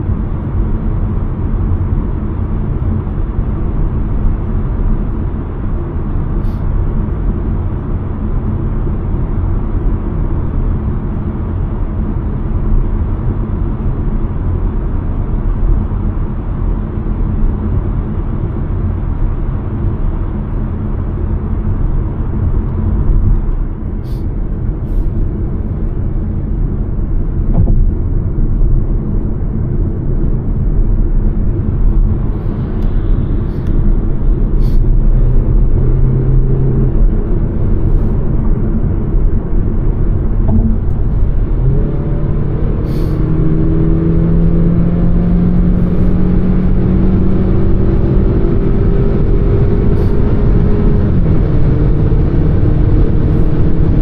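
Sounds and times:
car engine: 0.0s - 54.0s
tyre rumble inside car: 27.4s - 28.0s, 40.4s - 41.7s.

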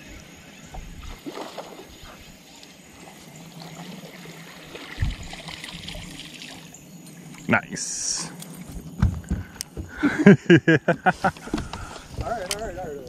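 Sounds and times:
fish splashing in water: 1.0s - 6.8s
dull thump: 8.6s - 10.2s.

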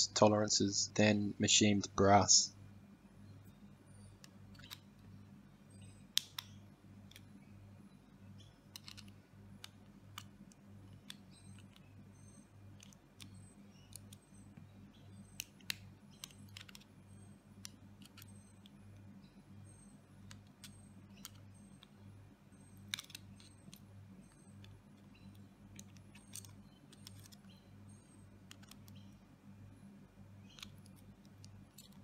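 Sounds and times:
faint low hum: 0.0s - 32.0s
small metal clicks and scrapes: 4.1s - 4.9s, 8.7s - 11.9s, 12.7s - 14.3s, 15.2s - 18.8s, 22.8s - 27.5s, 28.1s - 29.1s, 30.5s - 32.0s.

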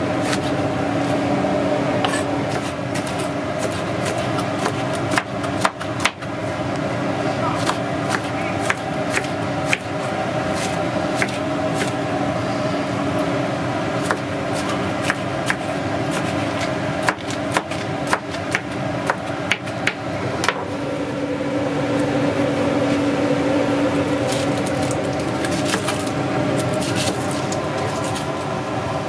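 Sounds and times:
mechanical hum: 0.0s - 29.0s
knife chopping on cutting board: 14.0s - 20.7s.

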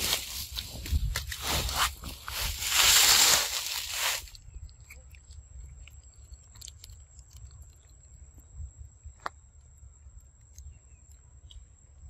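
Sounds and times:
monkey chewing fruit: 4.2s - 8.5s.

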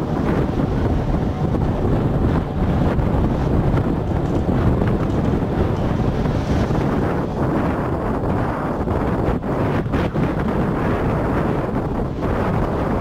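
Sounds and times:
tram running noise: 0.0s - 13.0s
wind buffeting microphone: 0.0s - 13.0s.

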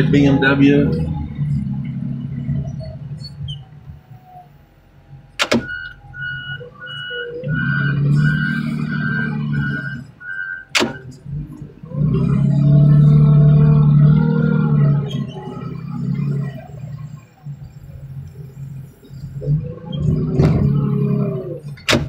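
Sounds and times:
reverse warning beeper: 0.0s - 11.2s
engine running: 0.0s - 22.0s
sharp clicks: 5.4s - 6.0s.

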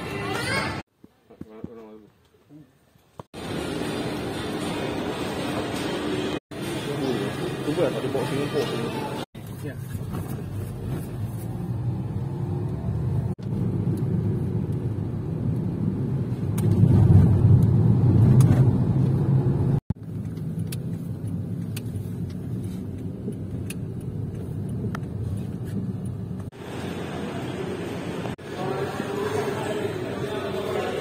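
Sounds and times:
car rumbling in motion: 9.4s - 28.4s.

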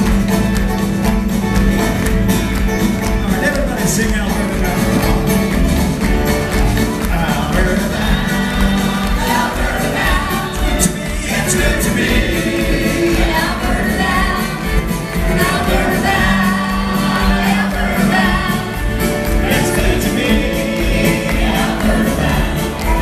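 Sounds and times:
drums: 0.0s - 23.0s
strummed acoustic guitars: 0.0s - 23.0s
voices singing together: 6.7s - 23.0s.

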